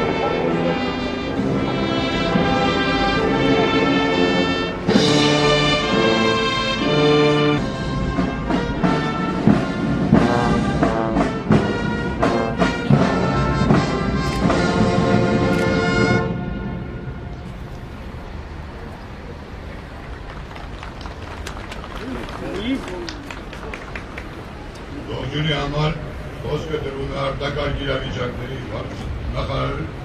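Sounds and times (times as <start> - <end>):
brass playing held chords: 0.0 - 18.0.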